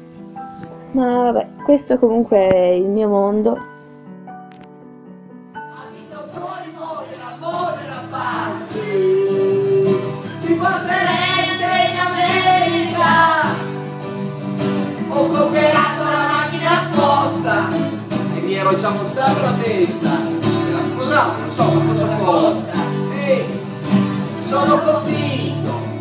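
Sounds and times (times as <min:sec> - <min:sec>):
acoustic guitars playing: 0:00.0 - 0:26.0
voices singing: 0:05.7 - 0:13.8, 0:14.9 - 0:26.0.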